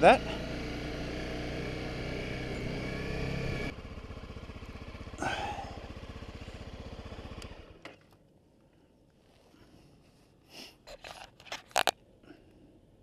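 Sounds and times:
rustling and scraping against camera: 9.1 - 12.0.

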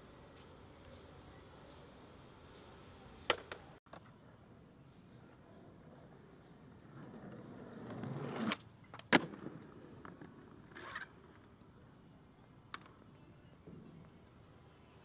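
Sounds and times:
skateboard wheels rolling on concrete: 0.0 - 15.0
skateboard landing clack: 3.3 - 4.1, 8.0 - 11.0
skateboard scraping: 5.1 - 11.8.

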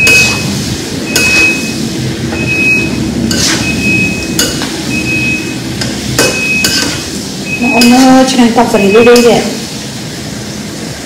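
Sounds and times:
metal utensil scraping metal pan: 0.0 - 1.7, 3.3 - 4.8, 5.8 - 7.2, 7.8 - 8.4.

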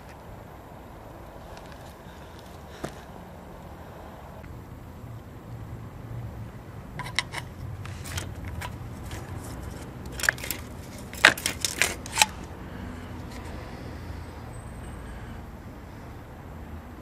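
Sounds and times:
clutch alignment tool clicking: 7.0 - 12.5.

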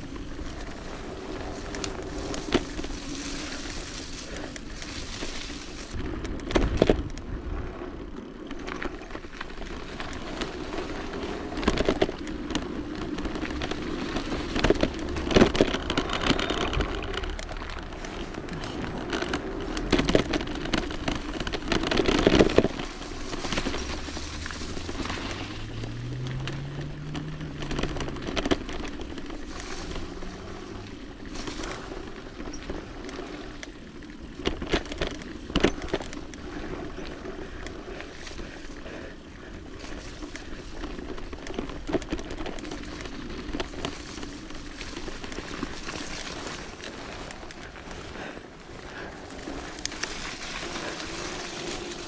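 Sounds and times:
bike rattling over bumps: 0.0 - 52.0
bike tyres slithering through mud: 0.0 - 52.0
low hum rising in pitch: 23.8 - 28.6.

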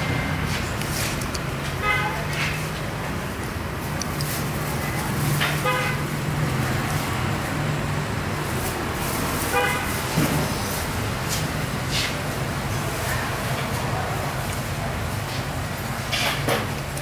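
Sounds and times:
road traffic engine hum: 0.0 - 17.0
vehicle horn toots: 1.8 - 2.5, 5.6 - 6.0, 9.5 - 10.0.

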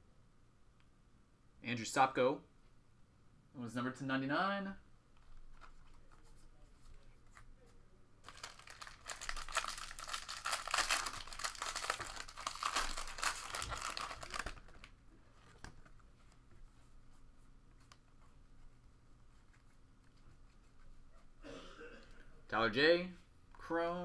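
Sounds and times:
foil wrapper crinkling and tearing: 8.2 - 14.9.

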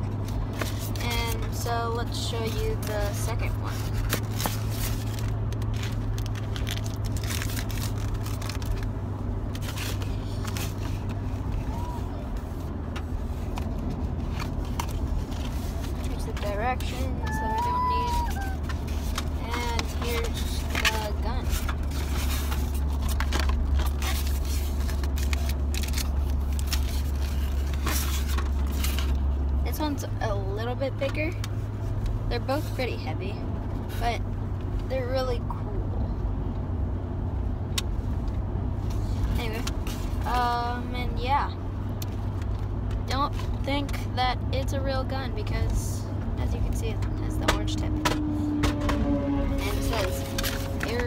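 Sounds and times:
car cabin hum: 0.0 - 27.0
packaging scraping and crinkling: 3.6 - 8.9, 17.6 - 29.2, 49.6 - 51.0.

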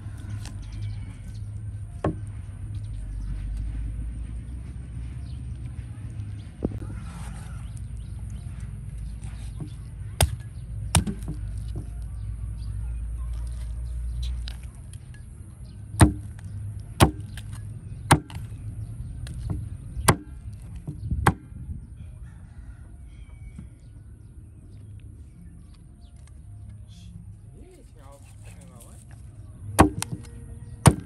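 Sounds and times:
heavy knife chopping: 9.5 - 11.9, 16.0 - 16.4, 17.0 - 18.5, 19.4 - 20.4, 29.8 - 31.0.

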